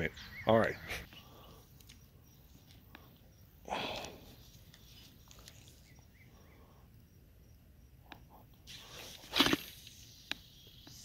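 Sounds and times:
faint bird chirps: 0.0s - 2.7s, 4.8s - 6.9s.

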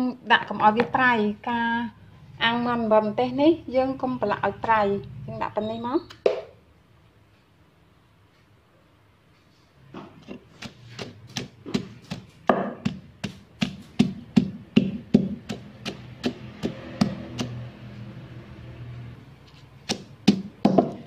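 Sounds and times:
pestle pounding in wooden mortar: 10.1s - 18.1s, 19.8s - 21.0s.

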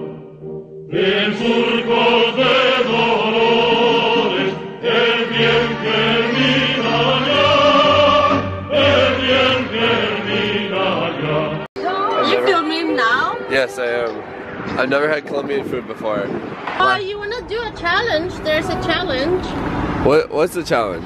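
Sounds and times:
choir-like singing: 0.9s - 14.7s.

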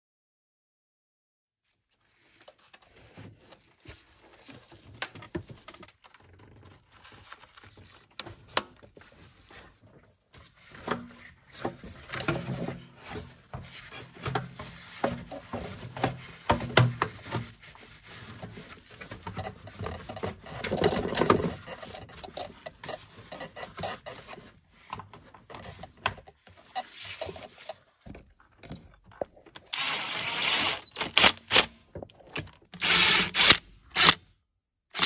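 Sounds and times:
cordless driver whirring: 29.7s - 31.7s, 32.8s - 34.2s.

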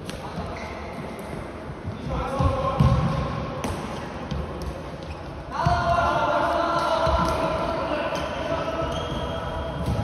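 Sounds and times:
footsteps on sports hall floor: 0.4s - 5.9s.

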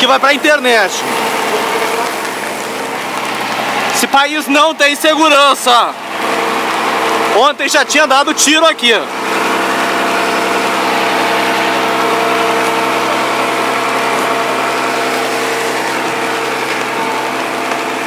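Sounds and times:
engine idling: 0.0s - 18.0s
loud rushing noise: 9.0s - 18.0s.

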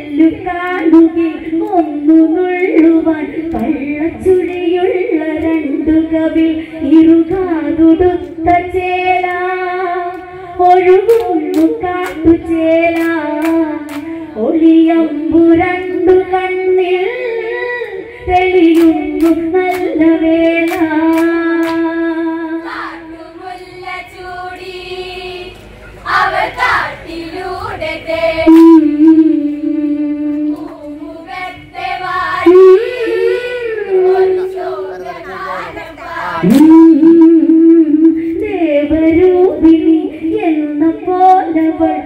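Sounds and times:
women singing through microphone: 0.0s - 42.0s
rhythmic hand claps: 0.6s - 6.0s, 8.1s - 10.4s, 11.0s - 14.2s, 17.8s - 22.0s.

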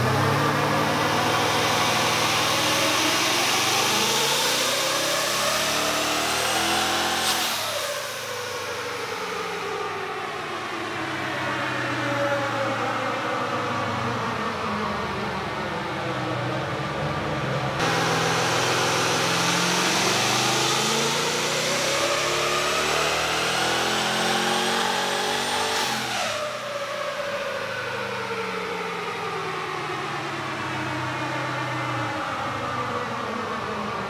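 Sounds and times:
engine revving at full throttle: 0.0s - 9.9s, 17.7s - 33.2s.

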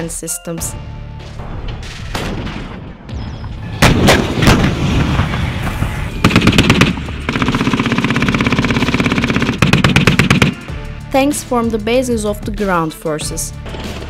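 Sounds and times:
gunshots: 1.4s - 10.7s
automatic gunfire: 6.2s - 10.7s.

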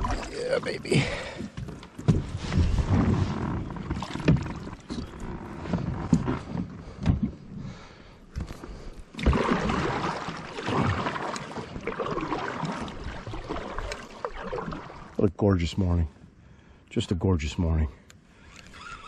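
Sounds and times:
paddle strokes splashing: 0.0s - 7.0s, 8.6s - 15.2s
water sloshing against hull: 0.0s - 16.8s.

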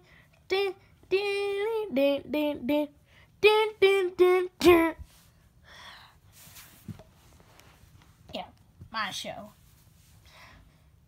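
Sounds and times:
child singing wordless tune: 0.0s - 5.1s.

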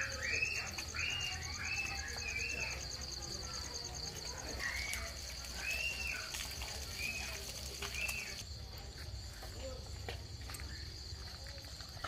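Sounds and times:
pulsing insect layer: 0.0s - 8.6s
crickets trilling: 0.0s - 12.0s.

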